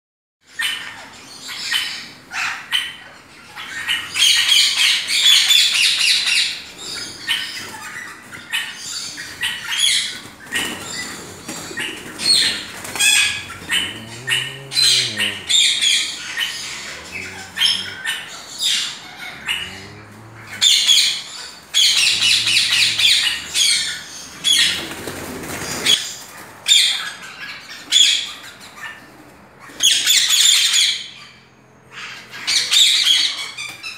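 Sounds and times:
parrots squawking: 0.5 - 33.9
low rising-and-falling hoots: 10.2 - 26.0.

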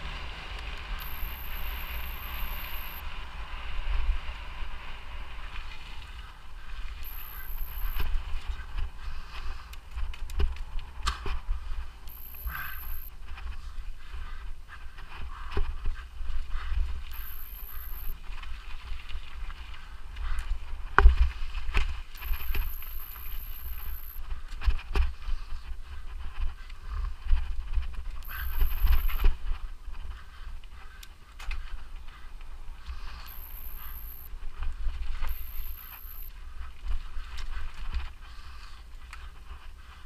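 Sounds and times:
bike tyres on dirt: 0.0 - 31.0
constant low rumble: 0.0 - 40.0
thin high whine: 0.9 - 3.2, 6.9 - 8.5, 12.0 - 13.2, 17.1 - 18.2, 22.2 - 24.2, 28.2 - 29.3, 33.2 - 34.3, 35.1 - 36.4.

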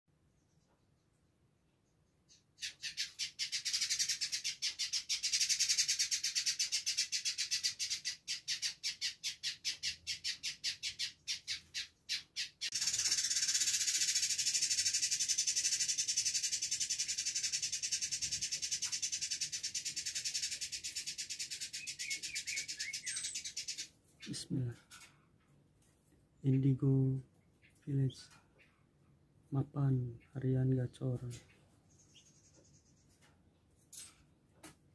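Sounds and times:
bird singing rapid high notes: 9.7 - 24.6.

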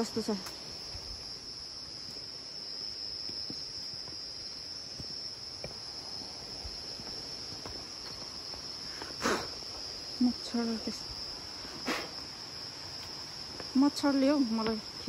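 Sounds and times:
insects chorus: 0.0 - 15.0
footsteps on rocky path: 3.1 - 9.9, 12.9 - 13.8.

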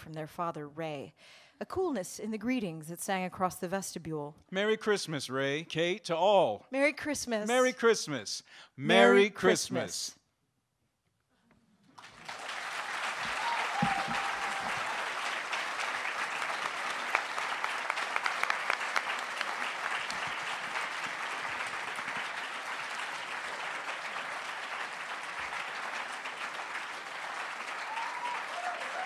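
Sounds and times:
audience applauding: 8.9 - 9.9, 11.9 - 29.0.

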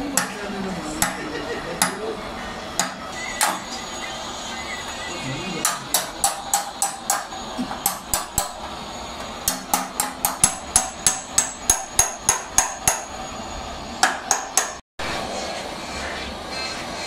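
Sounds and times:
hammer tapping metal: 0.1 - 0.4, 1.0 - 2.0, 2.8 - 3.6, 5.6 - 8.6, 9.5 - 13.1, 14.0 - 14.8.

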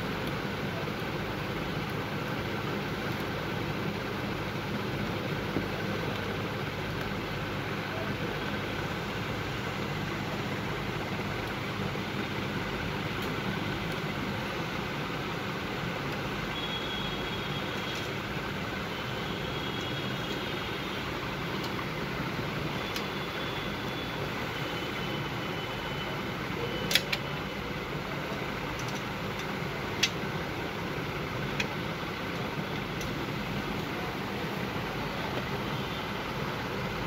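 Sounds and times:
fan whirring: 0.0 - 37.0
screwdriver clicking on metal: 26.9 - 27.3, 28.7 - 30.2.

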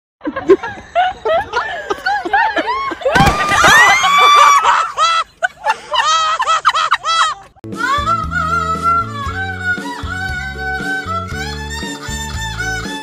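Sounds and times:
excited cries and laughter: 0.2 - 8.1.

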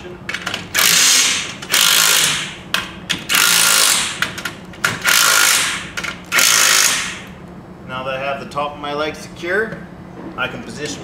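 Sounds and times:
impact driver hammering: 0.8 - 7.3.

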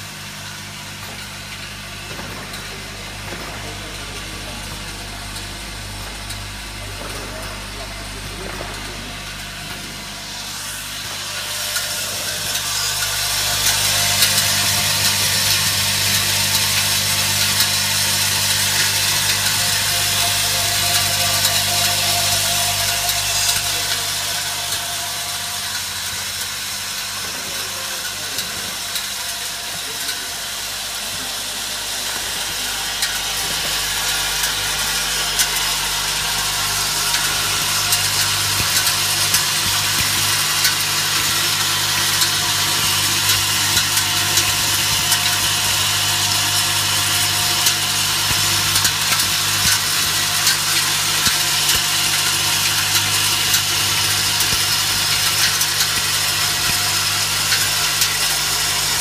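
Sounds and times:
vibratory bowl feeder buzzing: 0.0 - 59.0
metal tubes rattling and clinking: 11.2 - 29.2, 32.1 - 59.0.

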